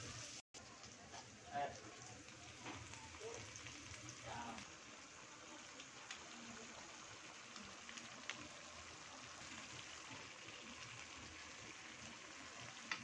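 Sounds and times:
sauce bubbling and sizzling: 0:00.0 - 0:13.0
small crackles: 0:07.4 - 0:08.7.

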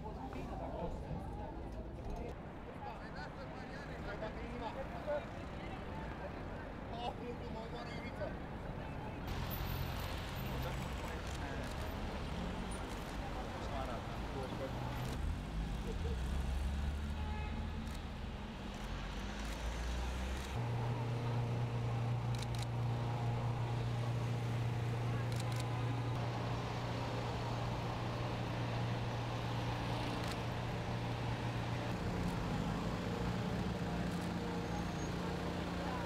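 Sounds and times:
road traffic noise: 0:01.5 - 0:36.0
low engine hum: 0:17.7 - 0:36.0.

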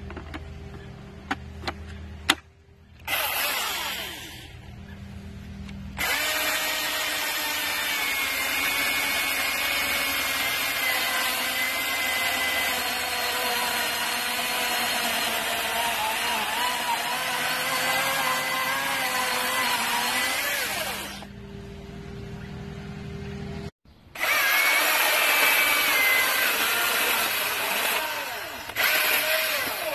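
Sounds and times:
chainsaw cutting through a log: 0:03.1 - 0:04.6, 0:05.9 - 0:21.3, 0:24.2 - 0:29.9.

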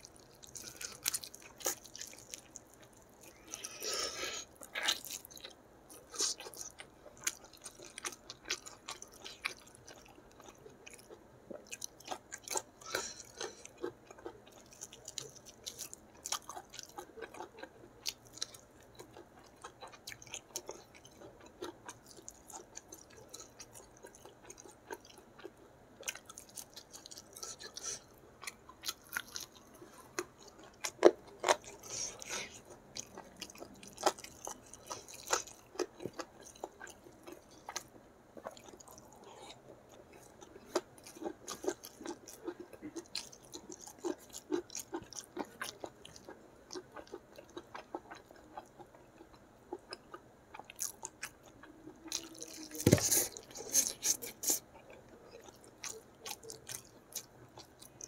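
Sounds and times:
wet chewing and crunching: 0:00.0 - 0:58.0.

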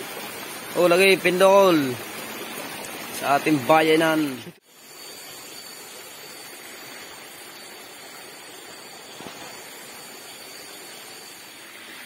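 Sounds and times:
night-time outdoor hiss: 0:00.0 - 0:12.0
faint high steady tone: 0:03.2 - 0:12.0.

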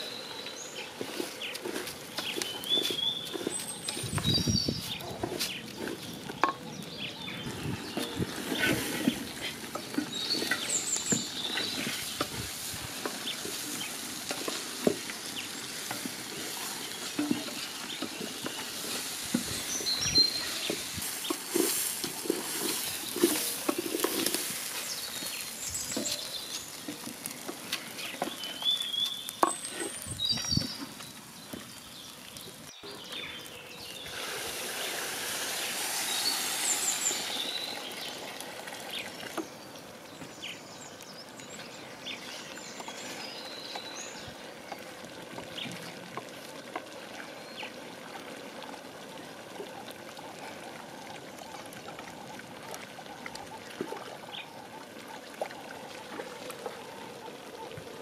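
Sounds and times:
rice swishing in water: 0:00.0 - 0:06.3, 0:07.4 - 0:32.7, 0:33.8 - 0:40.4
wooden spoon stirring dry rice: 0:00.1 - 0:06.7, 0:07.8 - 0:31.7
water pouring onto rice: 0:08.3 - 0:30.1, 0:33.9 - 0:39.4.

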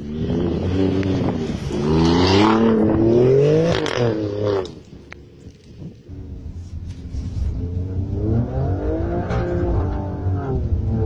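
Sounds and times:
car engine revving hard: 0:00.0 - 0:04.8, 0:07.7 - 0:11.0.

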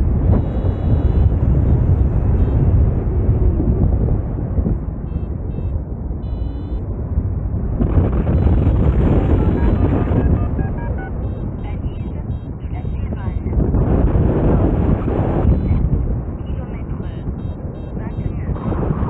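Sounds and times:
wind buffeting microphone: 0:00.0 - 0:19.0
short high beeps: 0:00.4 - 0:01.3, 0:05.1 - 0:06.8, 0:08.3 - 0:13.5, 0:15.4 - 0:15.8, 0:16.5 - 0:18.7.

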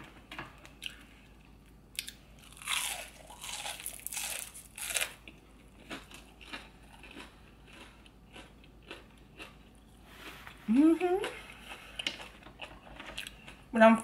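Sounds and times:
crunchy bites: 0:02.0 - 0:09.5.

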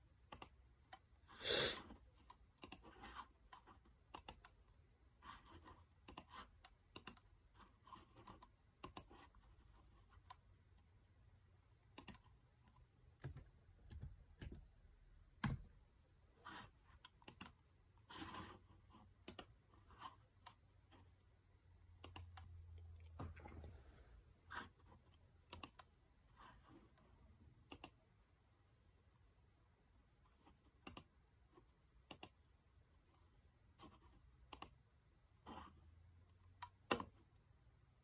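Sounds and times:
computer mouse and keys clicking: 0:00.2 - 0:01.2, 0:01.8 - 0:10.9, 0:11.9 - 0:15.8, 0:16.4 - 0:21.2, 0:22.0 - 0:23.6, 0:24.5 - 0:28.1, 0:30.2 - 0:32.4, 0:33.7 - 0:37.4.

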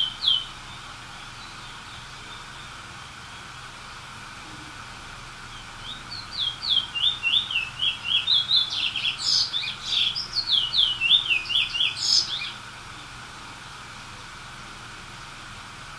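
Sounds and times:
songbird singing: 0:00.0 - 0:04.0, 0:05.4 - 0:13.2.

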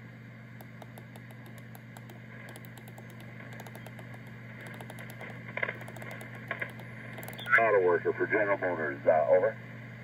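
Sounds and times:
steady low hum: 0:00.0 - 0:10.0
radio static: 0:04.7 - 0:09.6.

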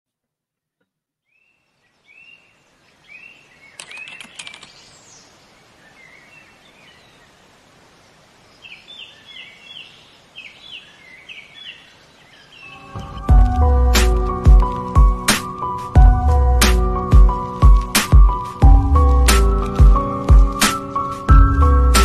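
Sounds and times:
birds chirping: 0:01.2 - 0:22.0
steady hiss: 0:02.0 - 0:22.0
run of clicks: 0:03.8 - 0:04.8.

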